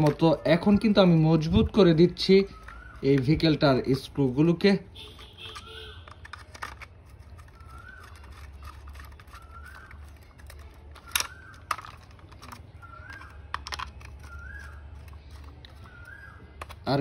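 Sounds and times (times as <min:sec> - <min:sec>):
bird calling: 0:01.9 - 0:04.0, 0:07.4 - 0:16.8.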